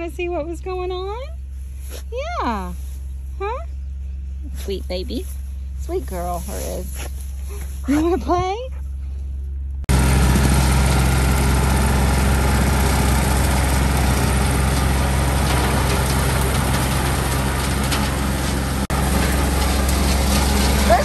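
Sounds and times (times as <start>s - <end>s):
low hum: 0.0s - 21.0s
tractor diesel engine running: 0.0s - 21.0s.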